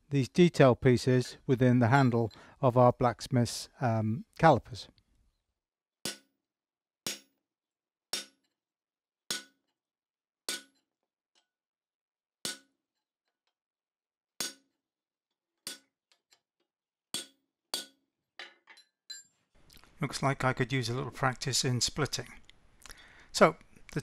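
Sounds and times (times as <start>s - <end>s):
hammer striking chisel on metal: 6.0s - 6.3s, 7.1s - 7.3s, 8.1s - 8.5s, 9.3s - 9.6s, 10.5s - 10.8s, 14.4s - 14.7s, 17.2s - 19.2s.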